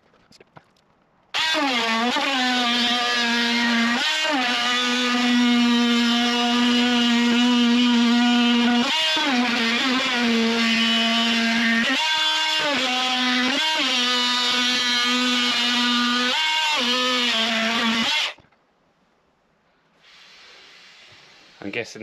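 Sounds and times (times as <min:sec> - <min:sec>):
oscillating multi-tool cutting plastic: 0:01.3 - 0:18.4.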